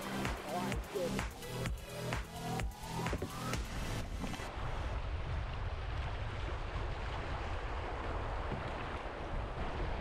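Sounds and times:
river water rushing: 0:00.0 - 0:10.0
wind rumbling on microphone: 0:02.5 - 0:10.0.

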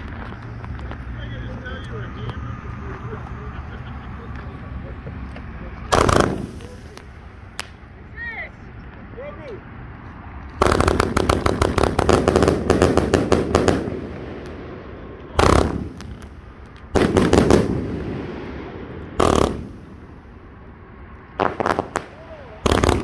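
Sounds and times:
firework cake firing shots: 0:05.9 - 0:07.8, 0:10.6 - 0:20.1, 0:21.4 - 0:23.0.

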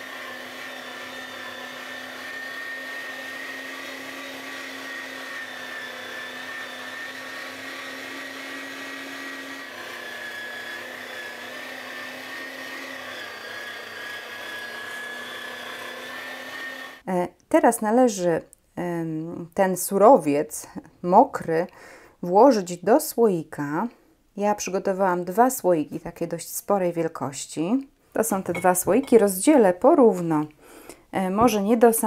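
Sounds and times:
electric meat grinder running: 0:00.0 - 0:17.0.

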